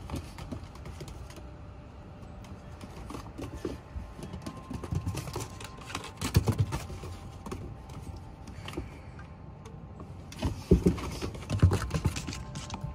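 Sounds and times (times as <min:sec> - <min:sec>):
dog claws scrabbling on wooden deck: 0:00.0 - 0:01.6, 0:02.2 - 0:08.9, 0:10.2 - 0:12.9.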